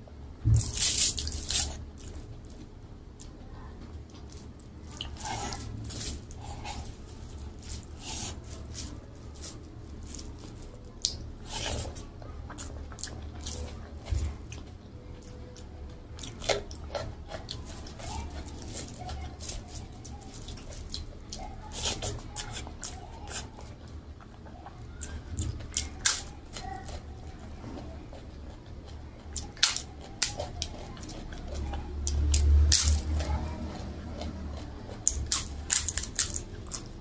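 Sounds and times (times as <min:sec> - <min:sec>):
chewing and lip smacks: 0:28.1 - 0:36.9.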